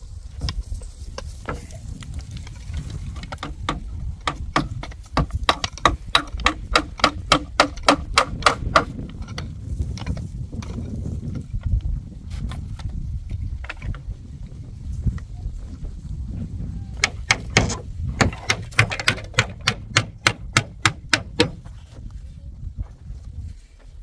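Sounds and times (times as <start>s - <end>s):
hammer striking nails: 3.2s - 9.4s, 17.0s - 21.7s.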